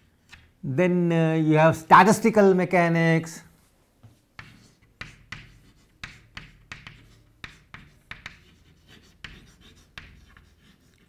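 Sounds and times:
chalk writing on a chalkboard: 4.0s - 11.0s.

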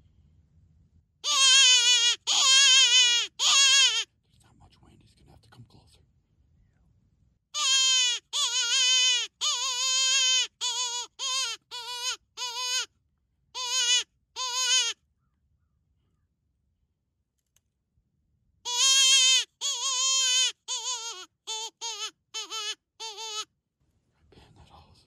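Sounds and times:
wavering distress cries: 1.2s - 4.0s, 7.6s - 12.9s, 13.6s - 15.0s, 18.7s - 23.5s.

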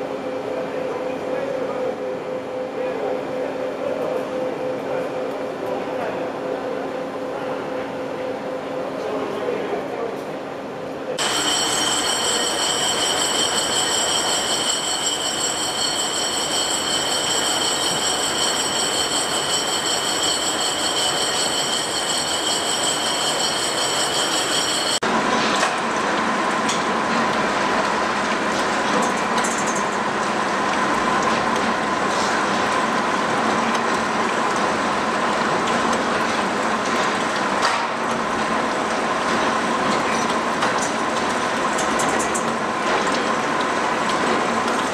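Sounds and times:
gear-cutting machine running: 11.2s - 25.0s
lathe whining: 11.2s - 25.0s.

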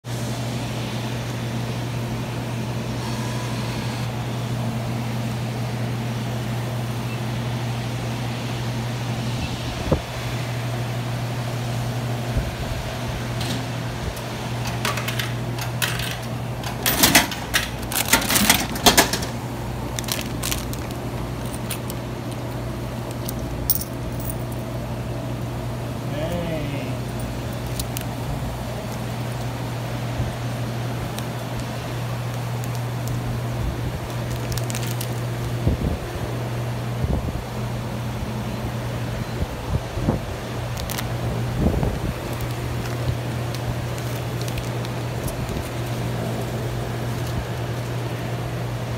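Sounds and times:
vending machine hum: 0.0s - 48.9s
metallic clinks and rattles: 20.0s - 24.7s.

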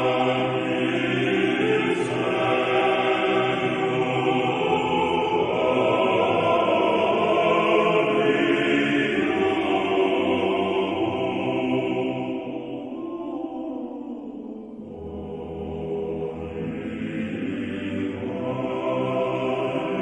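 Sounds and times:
choir chanting held chords: 0.0s - 20.0s.

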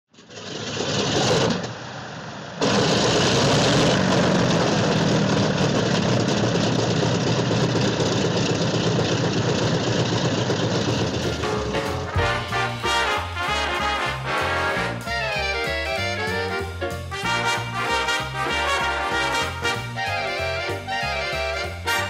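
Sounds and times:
loud engine running: 0.3s - 14.6s.

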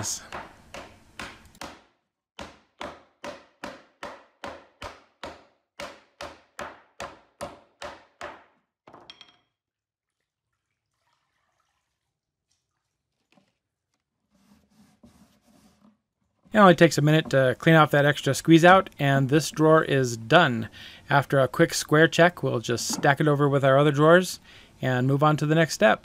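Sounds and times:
mallet striking plywood: 0.3s - 8.6s.

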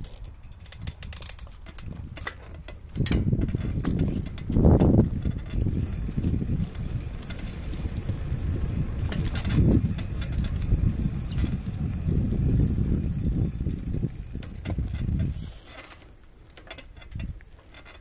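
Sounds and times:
wind buffeting microphone: 0.0s - 15.7s
bicycle tyre rumble: 0.0s - 18.0s.

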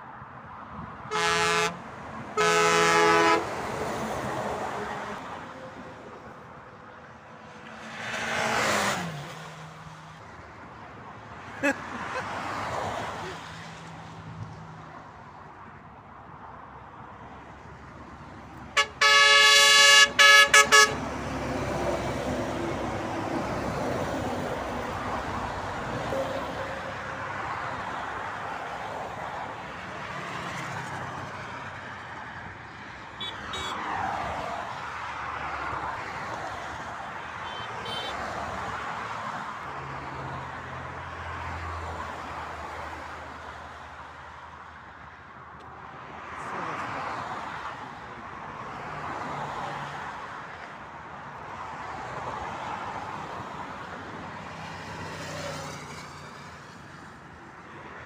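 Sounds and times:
highway traffic passing: 0.0s - 58.0s
truck air horn blasts: 1.1s - 3.7s, 18.7s - 21.1s, 26.1s - 27.0s, 33.2s - 33.9s, 37.4s - 38.2s.

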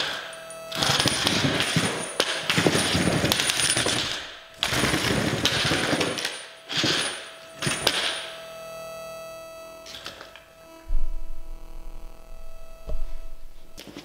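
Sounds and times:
robot electric drive: 7.4s - 14.0s.

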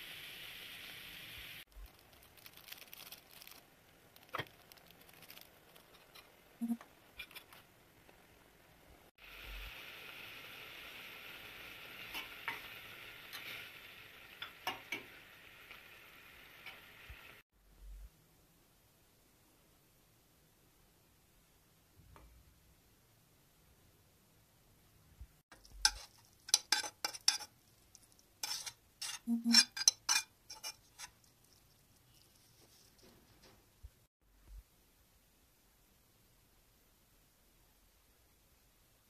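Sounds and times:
noodles bubbling in boiling water: 0.0s - 17.4s, 25.5s - 29.1s
utensil tapping metal pot: 25.5s - 31.3s.

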